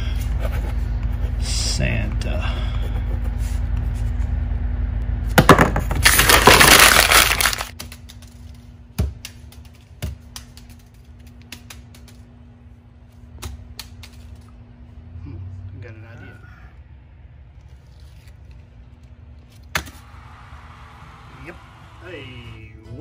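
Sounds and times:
paper crumpling: 6.0s - 8.5s, 17.6s - 19.7s.

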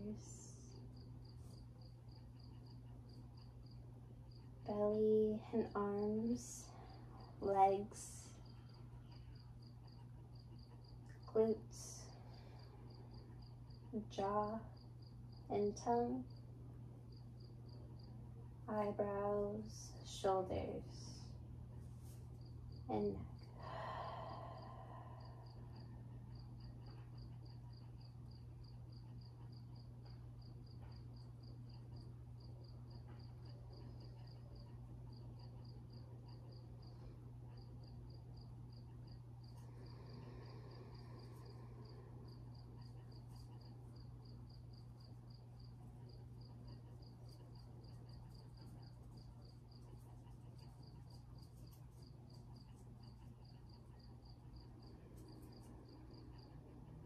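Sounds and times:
cricket chirping: 0.0s - 4.6s, 8.3s - 11.3s, 22.1s - 57.0s
steady low hum: 0.0s - 57.0s.

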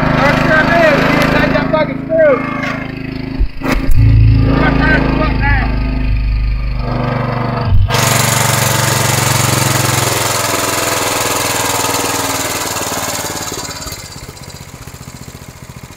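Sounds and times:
lawn mower engine running rough: 0.0s - 3.4s, 4.0s - 15.9s
loud thump: 3.3s - 4.9s, 7.6s - 8.2s.

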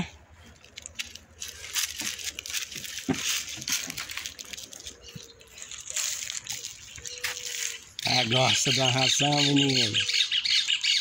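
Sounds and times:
cattle crunching dry feed: 0.3s - 8.5s.

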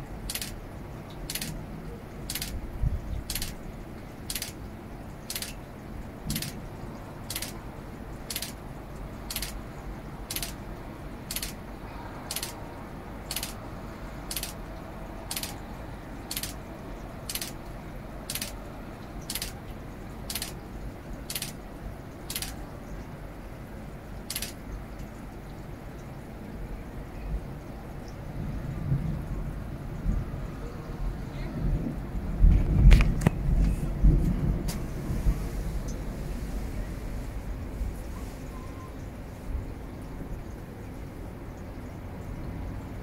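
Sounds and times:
sharp hissy tick: 0.2s - 1.6s, 2.2s - 2.6s, 3.2s - 3.6s, 4.2s - 4.6s, 5.2s - 5.6s, 6.3s - 6.6s, 7.2s - 7.6s, 8.2s - 8.6s, 9.2s - 9.6s, 10.2s - 11.6s, 12.3s - 12.6s, 13.3s - 16.6s, 17.2s - 18.6s, 19.2s - 21.6s, 22.2s - 22.7s, 24.3s - 25.1s.

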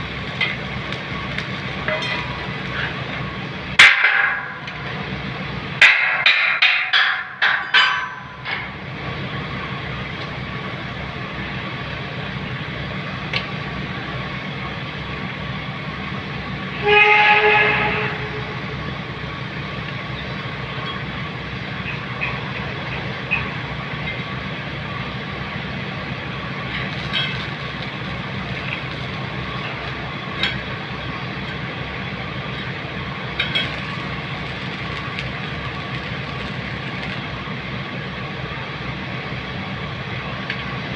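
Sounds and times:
machinery drone: 9.3s - 40.4s
horn sounding: 16.8s - 18.8s.

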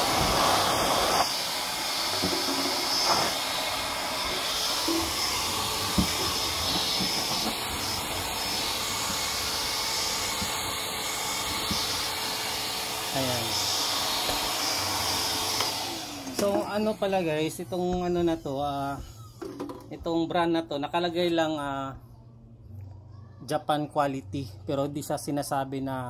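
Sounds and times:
vacuum blowing air: 0.0s - 19.4s.

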